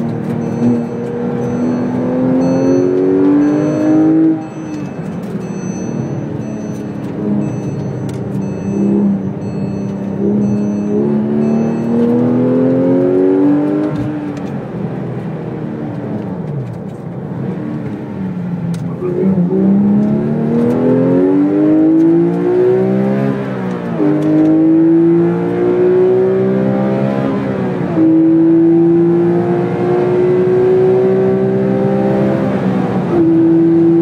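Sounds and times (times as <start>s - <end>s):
gear upshift: 0.0s - 26.0s
car engine accelerating: 0.0s - 34.0s.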